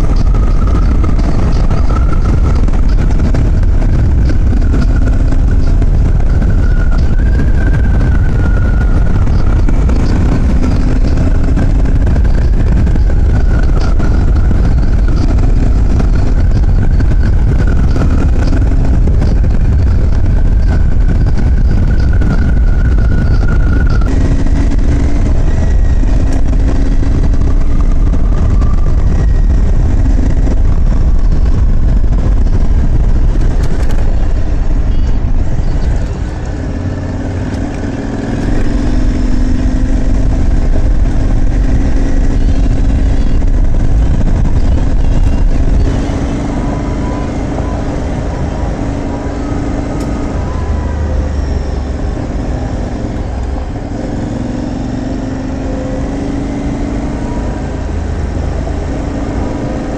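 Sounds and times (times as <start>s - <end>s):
motorcycle engine running: 0.0s - 59.9s
wind rumble on microphone: 0.0s - 59.9s.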